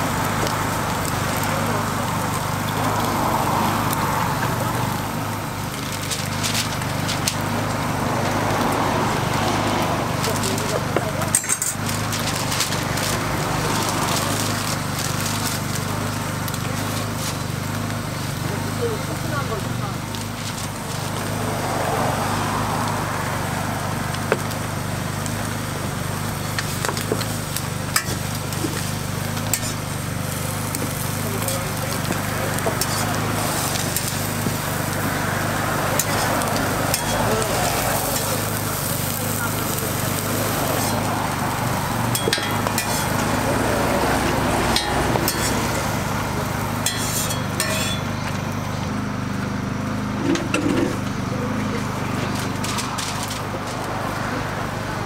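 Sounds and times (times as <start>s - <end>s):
metal spatula scraping griddle: 5.8s - 7.8s, 10.1s - 15.8s, 26.5s - 35.1s, 35.9s - 48.2s
metal spatula clicking on griddle: 36.0s - 37.2s, 42.1s - 43.2s, 46.8s - 48.0s.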